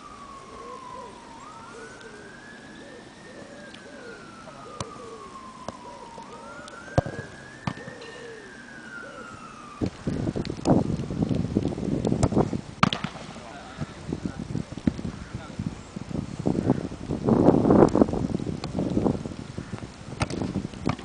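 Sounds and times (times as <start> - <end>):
emergency vehicle siren wailing: 0.0 - 12.1
footballs being struck: 7.0 - 7.9, 12.2 - 13.9, 20.2 - 21.0.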